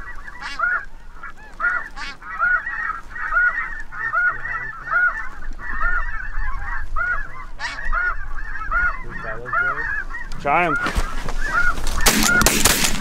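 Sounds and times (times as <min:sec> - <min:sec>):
loud goose call: 0:00.0 - 0:12.8
chorus of geese honking: 0:00.0 - 0:13.0.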